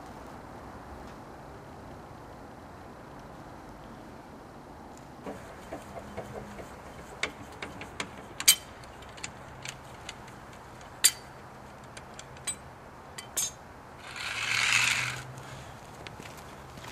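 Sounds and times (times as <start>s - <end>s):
jack scraping across asphalt: 5.2s - 12.6s, 13.2s - 16.9s.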